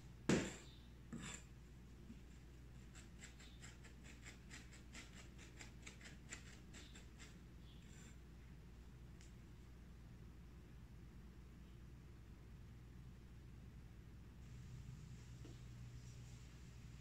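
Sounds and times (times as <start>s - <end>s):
knife cutting herbs: 2.8s - 7.4s.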